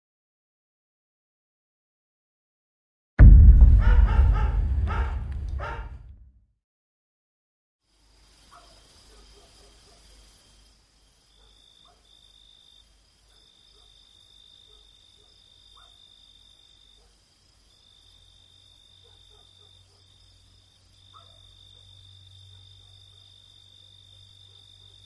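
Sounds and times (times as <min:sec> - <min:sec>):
low hum: 0:03.2 - 0:06.3
faint crickets trilling: 0:07.9 - 0:25.0.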